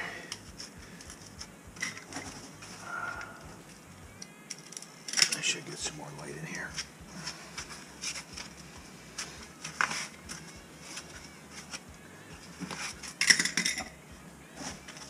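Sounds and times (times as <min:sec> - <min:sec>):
knife and plastic clattering on concrete: 0:04.5 - 0:05.4, 0:12.6 - 0:13.9.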